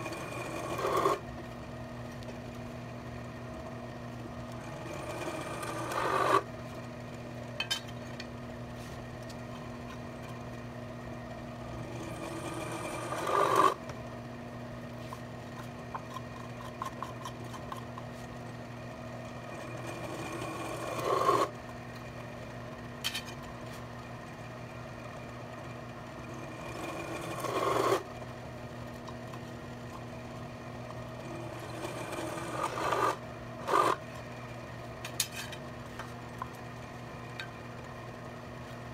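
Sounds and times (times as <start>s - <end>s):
milling machine spindle running: 0.0s - 1.4s, 2.4s - 7.5s, 9.3s - 14.9s, 15.6s - 22.8s, 24.2s - 34.6s
drill grinding through steel: 4.6s - 6.5s, 11.8s - 13.8s, 31.3s - 34.0s.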